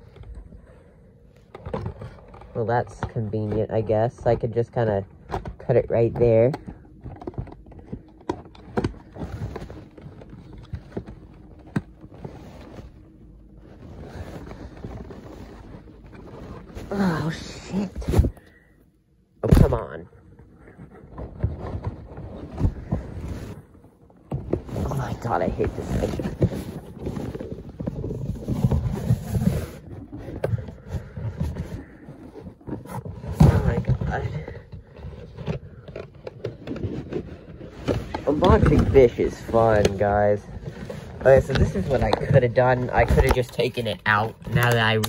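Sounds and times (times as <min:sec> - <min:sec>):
toy packaging rustling: 0:20.8 - 0:45.0.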